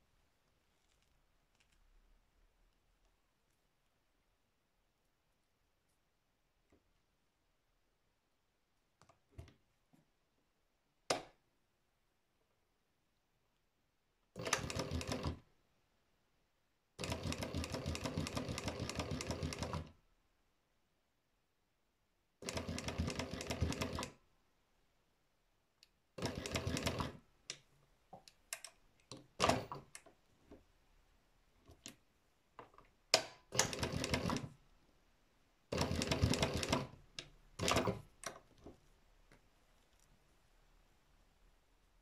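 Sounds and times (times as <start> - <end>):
embroidery machine stitching: 14.4 - 15.4, 17.0 - 19.9, 22.4 - 24.2, 26.2 - 27.2, 29.4 - 29.9, 33.5 - 34.6, 35.7 - 37.0, 37.6 - 38.1.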